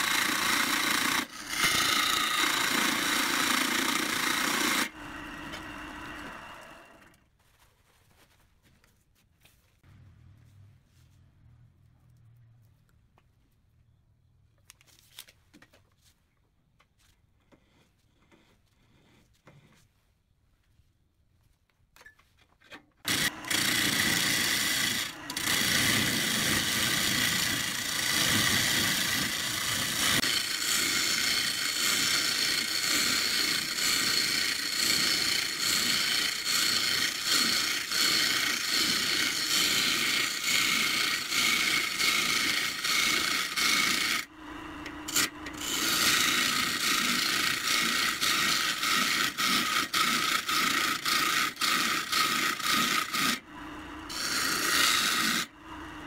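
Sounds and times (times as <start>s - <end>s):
lathe gouge scraping wood: 0.0s - 7.2s, 23.1s - 53.4s, 54.0s - 56.0s.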